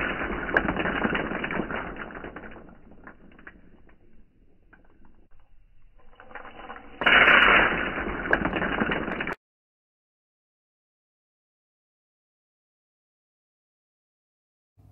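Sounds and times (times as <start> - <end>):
coffee beans clattering on plastic: 0.0 - 5.3, 6.2 - 9.4.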